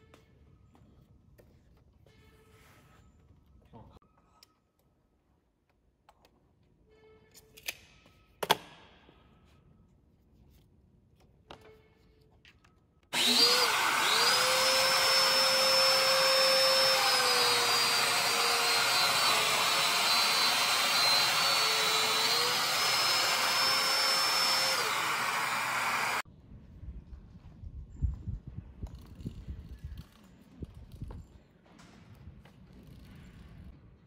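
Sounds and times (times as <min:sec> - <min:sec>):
power tool motor whine: 0:13.1 - 0:26.2
dust extraction rushing: 0:13.2 - 0:26.2.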